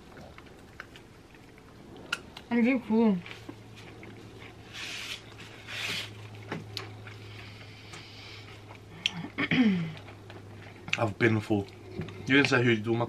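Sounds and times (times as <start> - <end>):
steady low hum: 0.0 - 13.0
chewing and sucking meat: 3.3 - 9.2.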